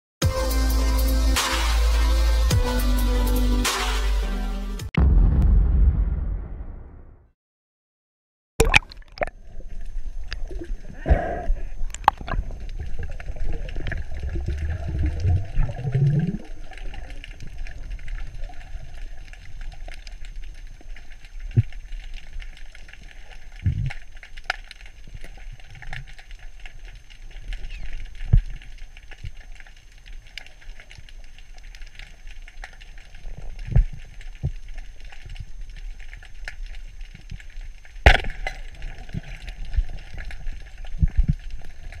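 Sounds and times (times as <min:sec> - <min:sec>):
muffled underwater rumble: 0:08.6 - 0:42.0
water gurgling: 0:08.6 - 0:42.0
speargun firing crack: 0:38.1 - 0:38.6.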